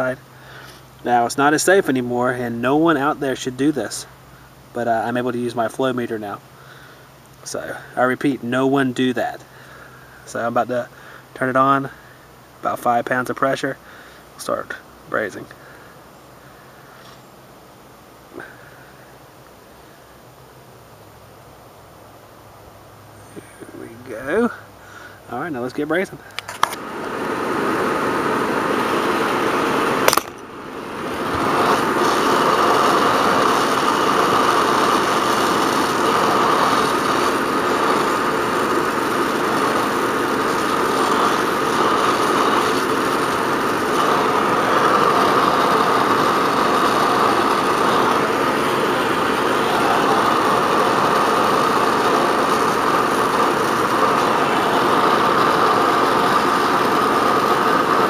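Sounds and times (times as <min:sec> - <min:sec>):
torch flame hissing: 0:00.0 - 0:08.2, 0:23.3 - 0:58.0
sharp click: 0:26.3 - 0:26.8, 0:30.0 - 0:30.4.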